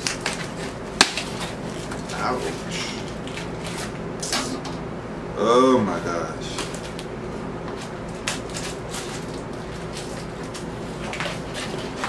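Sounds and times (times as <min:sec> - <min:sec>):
steady low hum: 0:00.0 - 0:12.0
package rustling: 0:08.1 - 0:12.0.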